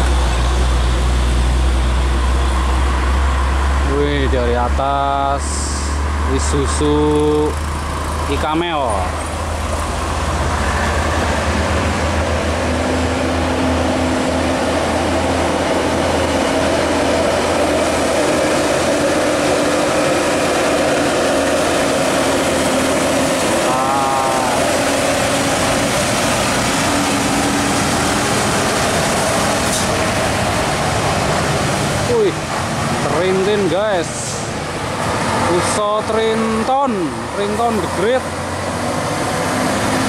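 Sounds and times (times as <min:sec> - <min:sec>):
diesel trucks passing: 0:00.0 - 0:40.0
tyre and road noise: 0:00.0 - 0:40.0.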